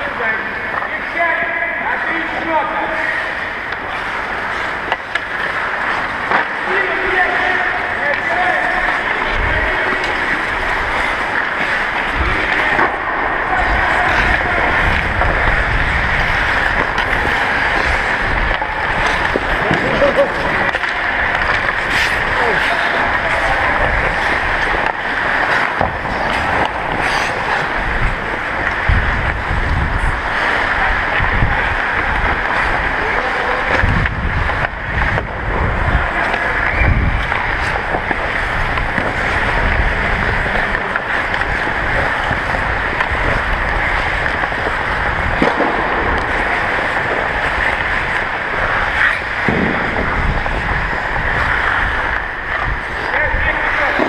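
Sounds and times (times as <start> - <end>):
ice skates scraping: 0.0 - 54.0
wind buffeting microphone: 11.9 - 53.9.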